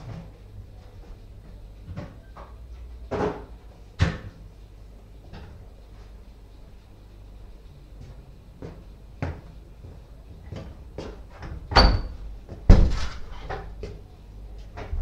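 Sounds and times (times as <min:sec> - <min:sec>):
footsteps on tiled floor: 0:07.9 - 0:11.6
door knock with rattle: 0:12.7 - 0:13.1.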